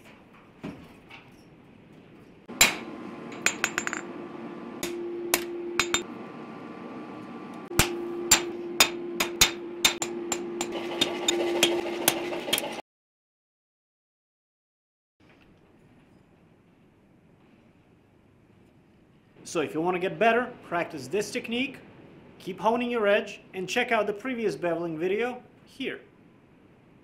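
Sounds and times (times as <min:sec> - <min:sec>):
hammer striking metal on anvil: 0:02.5 - 0:04.2, 0:04.8 - 0:06.1, 0:07.7 - 0:11.7
steady ringing tone: 0:02.6 - 0:06.1.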